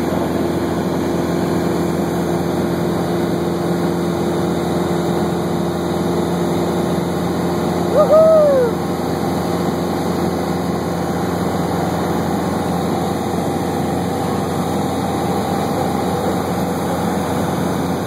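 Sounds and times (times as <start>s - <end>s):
aircraft engine drone in cabin: 0.0s - 18.0s
rising and falling tone: 7.9s - 8.8s.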